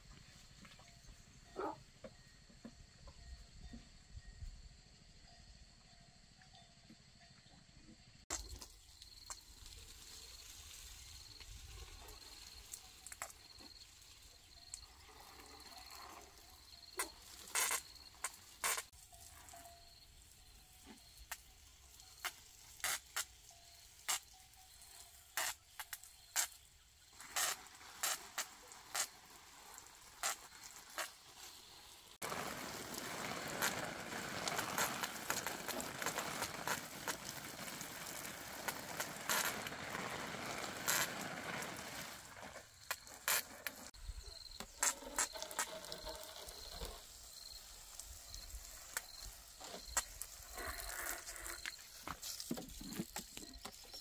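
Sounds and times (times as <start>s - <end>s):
water pattering on leaves: 8.3s - 16.2s, 17.0s - 19.6s, 20.2s - 43.9s, 44.7s - 54.0s
hose spray hissing: 15.0s - 44.0s, 44.6s - 54.0s.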